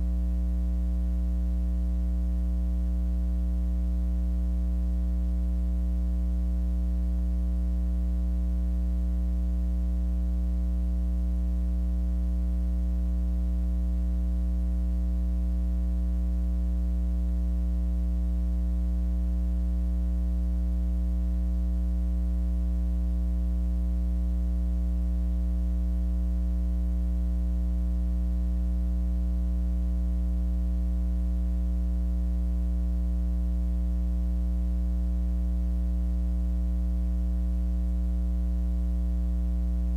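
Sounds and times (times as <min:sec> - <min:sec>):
electrical mains hum: 0:00.0 - 0:39.9.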